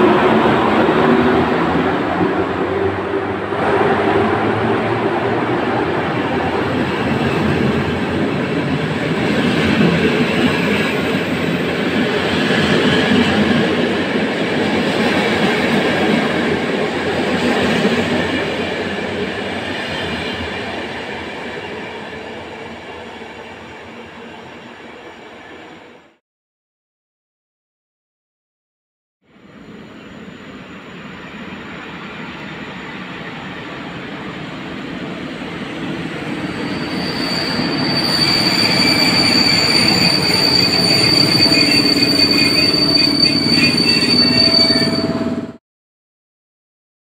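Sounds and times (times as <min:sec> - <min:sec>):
train wheels rumbling on rails: 0:00.0 - 0:23.0, 0:31.0 - 0:45.6.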